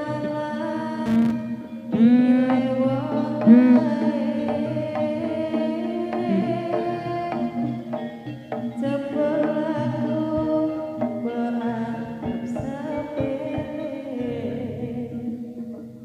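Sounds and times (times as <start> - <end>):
gamelan music over sound system: 0.0 - 16.0
person singing: 0.0 - 16.0
sustained pitched tones: 1.0 - 10.4
sharp drum strokes: 2.0 - 8.9.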